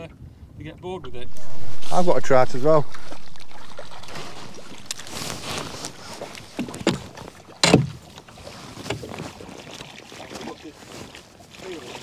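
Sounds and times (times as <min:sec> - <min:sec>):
wind noise: 0:00.3 - 0:07.6.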